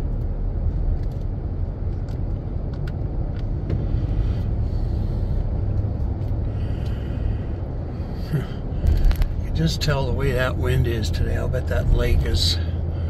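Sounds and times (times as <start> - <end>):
truck engine and tyre rumble: 0.0 - 13.0.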